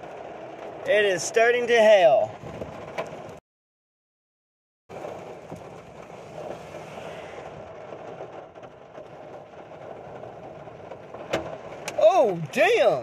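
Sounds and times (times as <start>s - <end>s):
rain and hail on a vehicle: 0.0s - 3.4s, 4.9s - 13.0s
hailstone cracking on vehicle: 4.9s - 12.9s.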